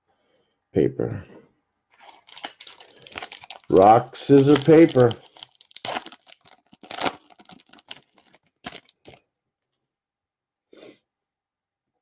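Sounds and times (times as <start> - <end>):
cards and wrappers rustling: 1.9 - 9.2.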